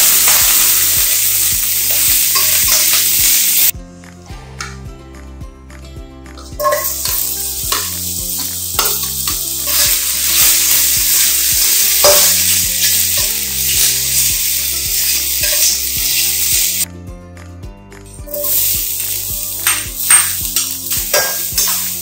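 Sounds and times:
food sizzling in hot oil: 0.0 - 3.7, 6.6 - 16.9, 18.3 - 22.0
spatula scraping wok: 6.6 - 16.9, 18.3 - 22.0.

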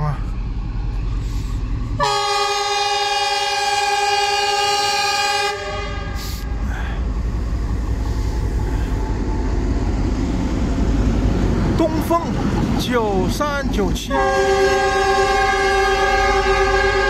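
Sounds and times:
diesel engine rumble: 0.0 - 17.0
locomotive horn blast: 2.0 - 6.6, 14.0 - 17.0.

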